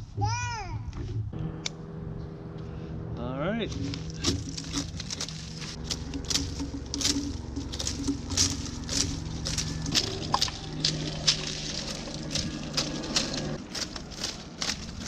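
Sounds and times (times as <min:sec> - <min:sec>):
steady low hum: 0:00.8 - 0:15.0
dry palm leaves tearing: 0:03.7 - 0:15.0.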